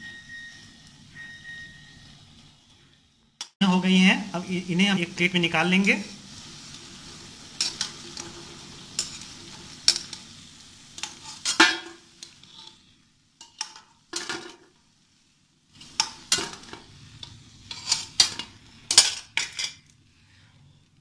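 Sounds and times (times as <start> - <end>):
frying in hot oil: 0.0 - 21.0
metal ladle scraping pan: 6.6 - 10.2, 11.0 - 14.6, 15.8 - 19.9.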